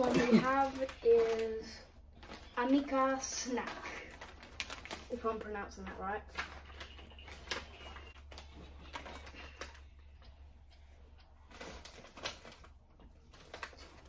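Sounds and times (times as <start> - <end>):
crisp packet crinkling: 0.0 - 9.9, 11.5 - 14.0.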